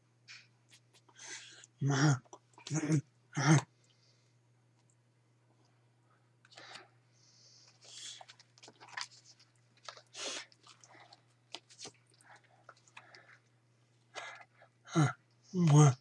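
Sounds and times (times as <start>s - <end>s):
breathing: 1.1s - 1.7s, 3.8s - 4.4s, 6.1s - 8.3s, 12.2s - 13.5s
handling paper cards: 7.5s - 13.5s.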